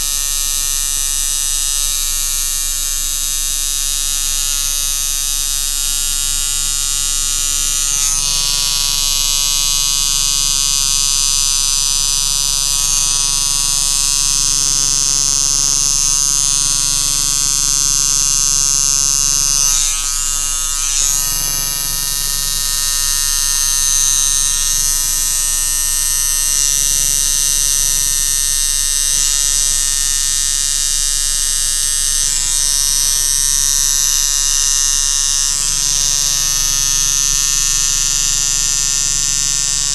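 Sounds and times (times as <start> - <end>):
tattoo machine buzzing: 0.0 - 39.9.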